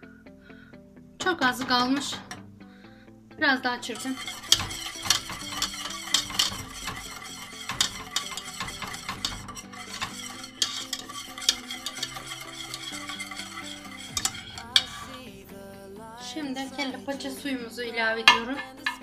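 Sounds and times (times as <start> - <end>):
whisk clicking in metal pot: 4.0 - 15.4.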